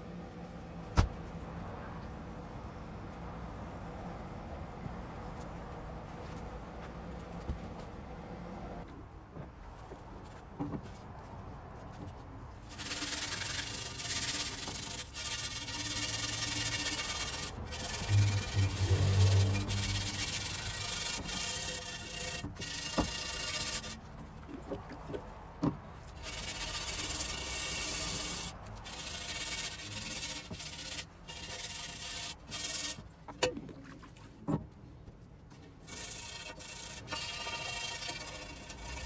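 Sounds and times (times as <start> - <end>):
scrubbing wet cast iron: 12.6 - 25.2, 26.1 - 33.1, 35.8 - 39.0.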